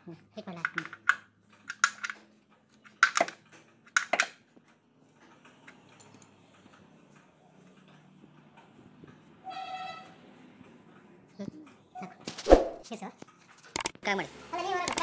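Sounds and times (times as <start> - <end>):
metallic clattering clicks: 0.6 - 9.2, 13.2 - 14.0.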